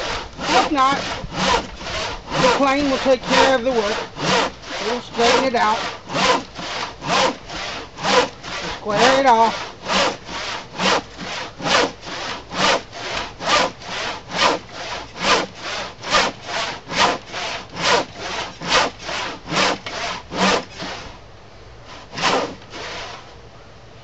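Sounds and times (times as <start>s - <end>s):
handsaw cutting wood: 0.0s - 21.2s, 21.9s - 23.2s.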